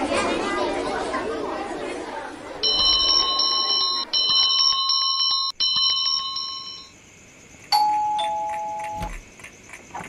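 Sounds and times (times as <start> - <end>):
bell ringing with fast trill: 2.6 - 6.9
doorbell ding-dong: 2.6 - 6.9, 7.8 - 9.1.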